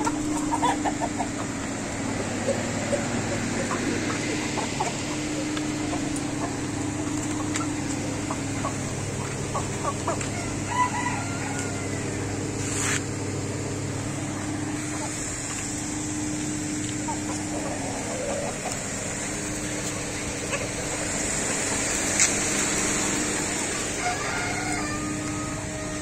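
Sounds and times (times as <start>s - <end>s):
chickens clucking: 0.0s - 26.0s
steady low hum: 0.0s - 26.0s
rooster crowing: 10.1s - 12.5s, 23.7s - 26.0s.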